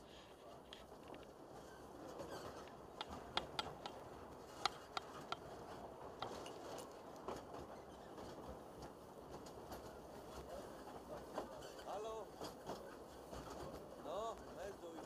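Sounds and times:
railway carriage rumble: 0.0s - 15.0s
sharp irregular clicks and knocks: 2.3s - 11.6s.

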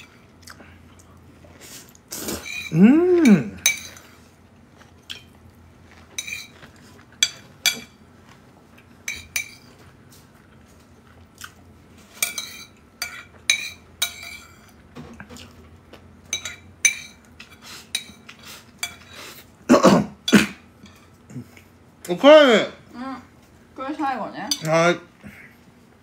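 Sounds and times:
person humming: 2.7s - 3.6s.

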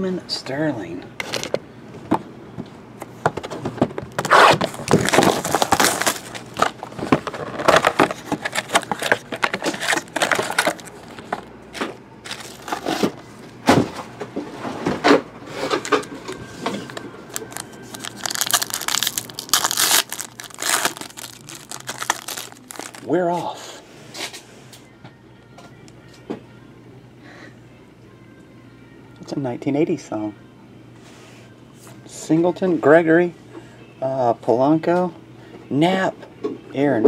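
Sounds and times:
foil packs crinkling and tearing: 4.1s - 13.2s, 15.5s - 23.2s.

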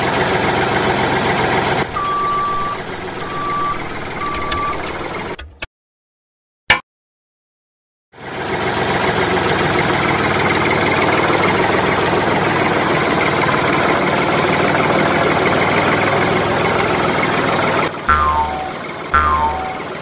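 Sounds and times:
tractor engine running: 0.0s - 5.4s, 8.2s - 20.0s
electronic jingle of falling tones: 18.1s - 20.0s.

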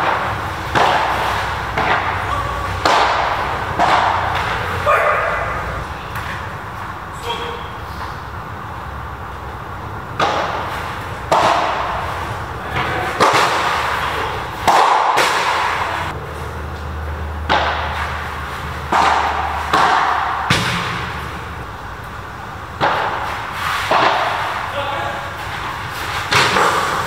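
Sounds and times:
padel ball struck with rackets: 0.0s - 4.6s, 10.2s - 12.2s, 12.8s - 16.2s, 18.8s - 21.2s.

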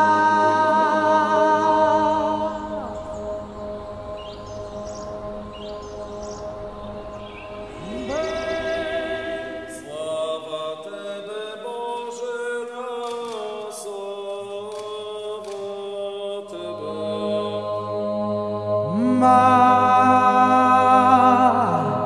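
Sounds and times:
low steady drone: 0.0s - 10.9s
voices chanting: 0.0s - 21.7s.

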